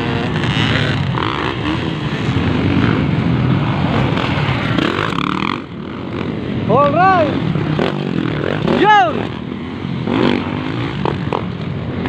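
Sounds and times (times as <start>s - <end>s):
dirt bike engine running hard: 0.0s - 12.0s.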